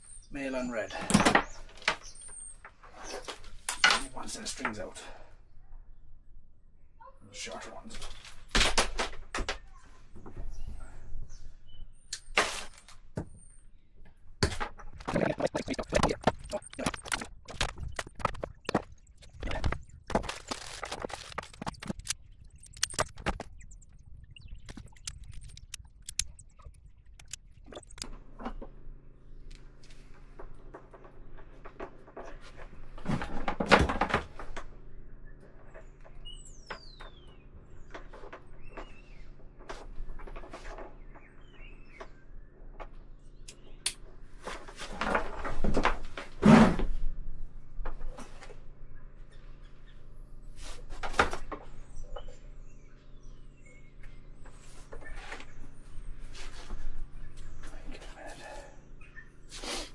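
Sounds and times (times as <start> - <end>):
hands handling cables and tool: 15.0 - 23.6.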